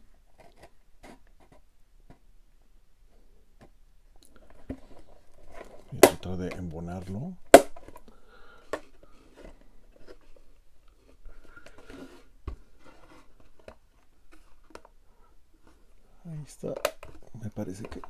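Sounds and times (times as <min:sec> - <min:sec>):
crackly rustles: 0:03.1 - 0:18.0
plastic panels clicking: 0:16.6 - 0:18.0.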